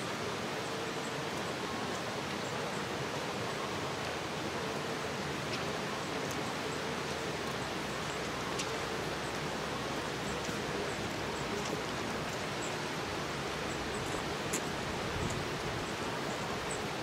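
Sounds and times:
outdoor background hiss: 0:00.0 - 0:17.0
faint small clicks: 0:08.2 - 0:09.5, 0:14.5 - 0:15.4.

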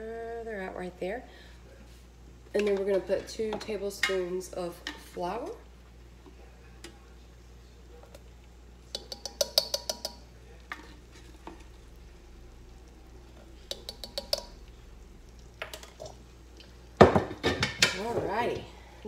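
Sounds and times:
spoon clinking on saucepan rim: 0:08.9 - 0:10.9, 0:13.7 - 0:14.6.

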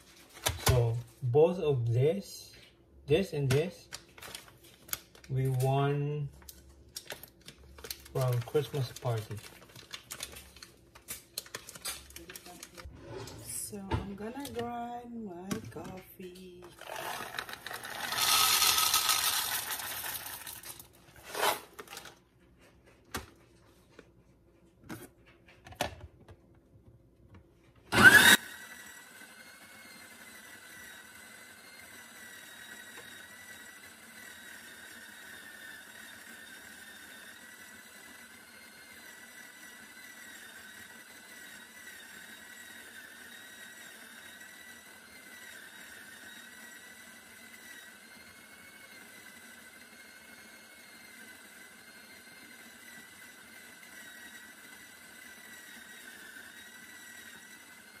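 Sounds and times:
coffee grinder whirring: 0:03.4 - 0:22.2, 0:27.9 - 0:58.0
coffee beans poured into hopper: 0:08.1 - 0:09.5, 0:16.7 - 0:22.1.

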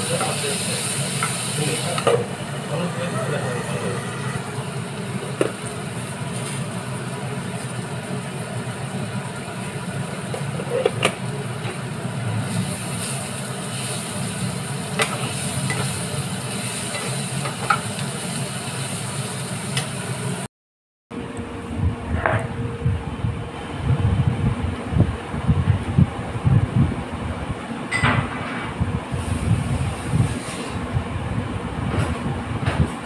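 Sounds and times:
pumpkin frying in oil: 0:00.0 - 0:20.5.

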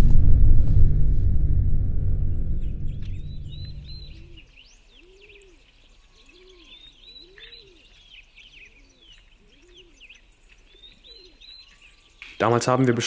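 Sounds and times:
songbirds chirping: 0:02.5 - 0:13.0
dove cooing: 0:06.2 - 0:08.0, 0:08.6 - 0:10.2.

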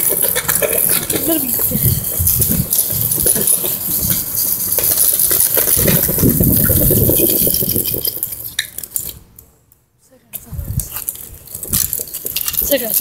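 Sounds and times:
scooter rumbling and rattling: 0:00.0 - 0:09.4, 0:10.4 - 0:13.0
wind on microphone: 0:00.4 - 0:04.5, 0:05.6 - 0:08.2, 0:10.4 - 0:12.7.

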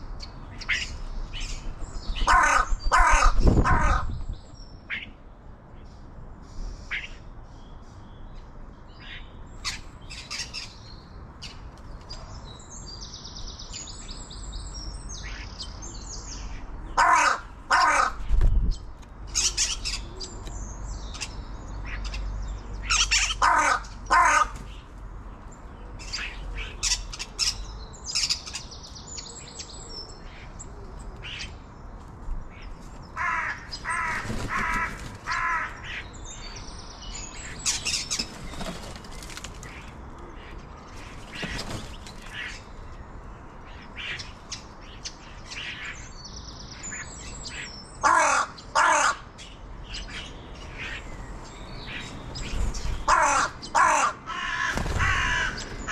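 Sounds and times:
songbirds chirping: 0:00.0 - 0:55.9
crow cawing: 0:02.2 - 0:04.1, 0:17.0 - 0:18.2, 0:23.2 - 0:24.6, 0:33.2 - 0:36.0, 0:48.0 - 0:49.3, 0:53.1 - 0:55.9.

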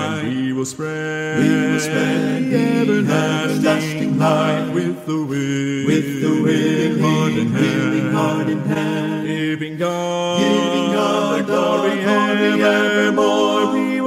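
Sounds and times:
voices singing a hymn: 0:00.0 - 0:14.0.

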